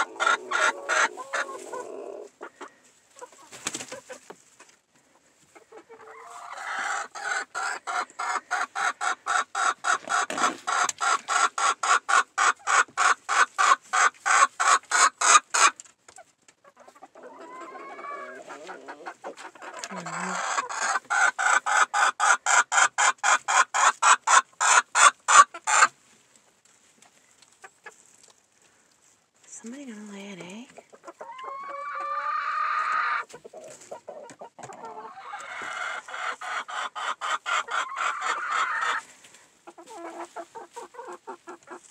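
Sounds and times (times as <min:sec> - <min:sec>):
hen clucking: 0:00.0 - 0:26.0, 0:27.0 - 0:28.2, 0:30.1 - 0:41.9.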